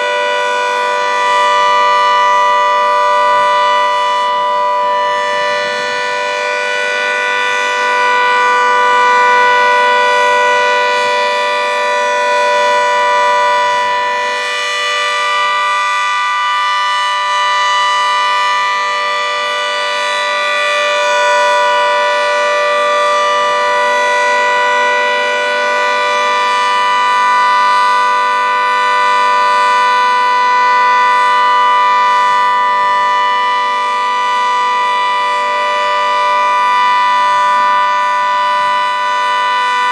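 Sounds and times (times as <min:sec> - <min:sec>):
two-tone warning siren: 0:00.0 - 0:39.9.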